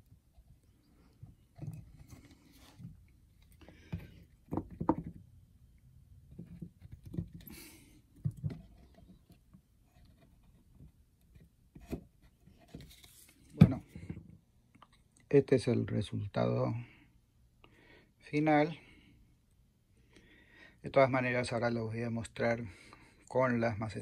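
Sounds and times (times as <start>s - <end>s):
wooden parts knocking: 3.9s - 5.2s.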